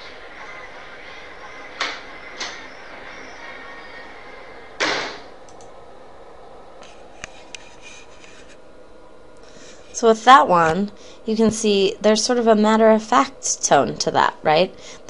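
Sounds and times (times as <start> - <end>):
door shutting: 1.7 - 3.0, 4.8 - 5.3.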